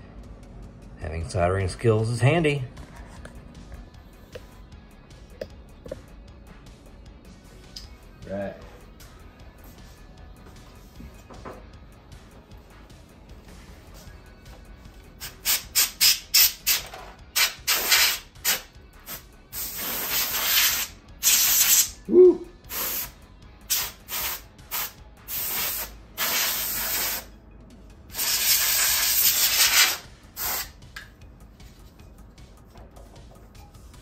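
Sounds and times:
compressed air spraying: 0:15.2 - 0:16.8, 0:17.4 - 0:22.0, 0:22.6 - 0:27.3, 0:28.1 - 0:30.8.

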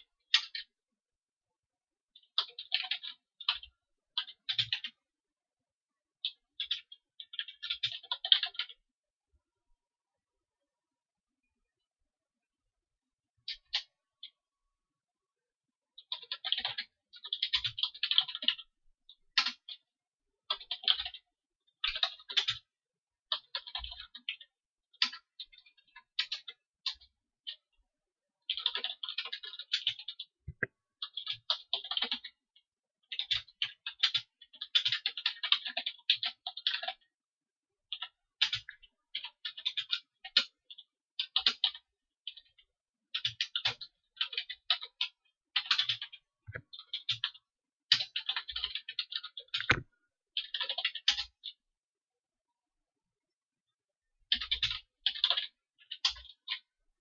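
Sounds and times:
computer keyboard typing: 0:02.2 - 0:05.0, 0:06.2 - 0:08.8, 0:16.0 - 0:27.7, 0:28.4 - 0:37.2, 0:37.9 - 0:51.6, 0:54.3 - 0:56.7.

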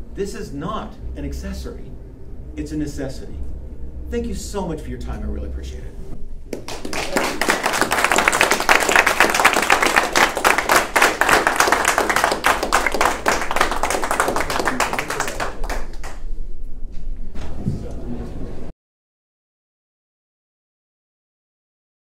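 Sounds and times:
audience applauding: 0:06.5 - 0:16.3.

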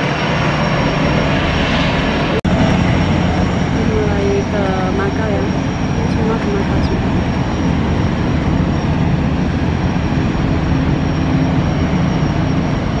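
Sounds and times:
low drone of ferry engines: 0:00.0 - 0:13.0.

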